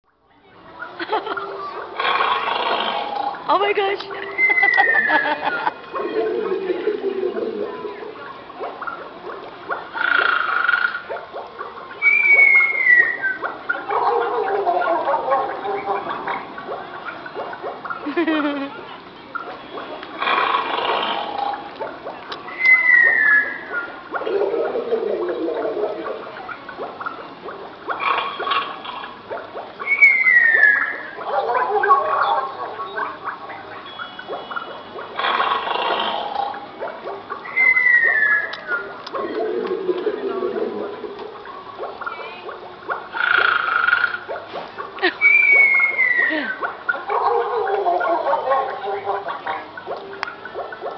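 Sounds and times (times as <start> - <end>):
fountain water splashing: 0.6 - 50.9
falling whistle: 12.0 - 13.4.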